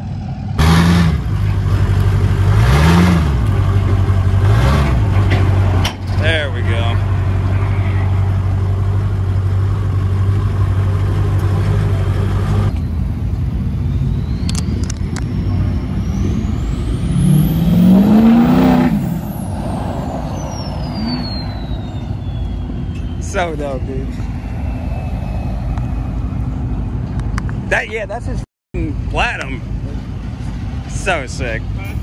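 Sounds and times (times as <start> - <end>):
vehicle engine running and revving: 0.0 - 23.2
high whistle: 12.7 - 26.9.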